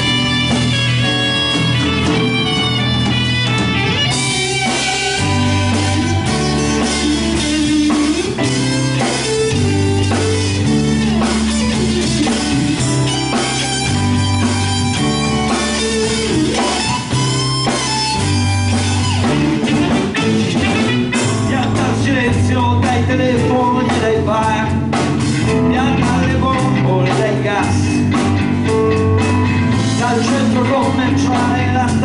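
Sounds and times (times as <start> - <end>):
saxophone: 0.0 - 21.3
bass guitar: 0.0 - 32.0
drum kit: 0.0 - 32.0
electric guitars: 0.0 - 32.0.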